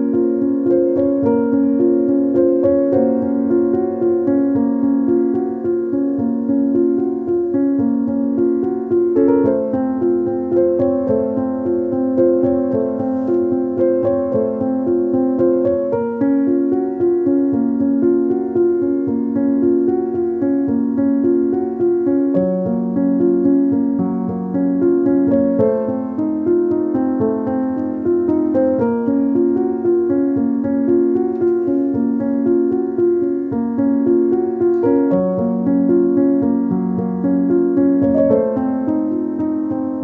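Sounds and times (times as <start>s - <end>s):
piano music with repeated notes: 0.0s - 40.0s.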